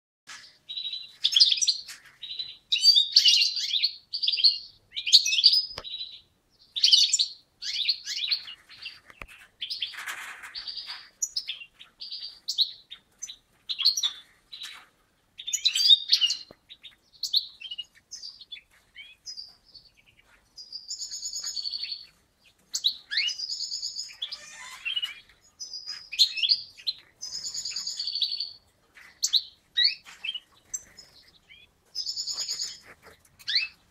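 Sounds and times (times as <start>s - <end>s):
finches twittering and singing: 15.4s - 33.9s.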